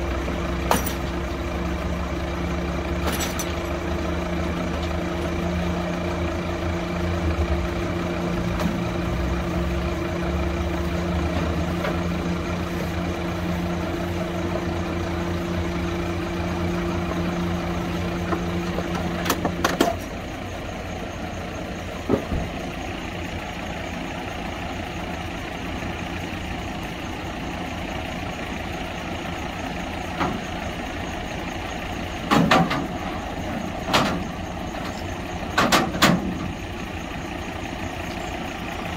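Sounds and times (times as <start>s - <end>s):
diesel engine running: 0.0s - 38.9s
metallic clanks: 0.6s - 1.2s, 3.0s - 3.7s.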